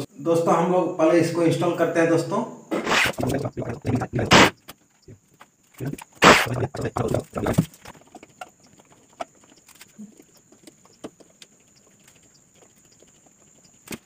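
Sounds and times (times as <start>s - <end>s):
faint clicks and taps: 4.6s - 14.0s.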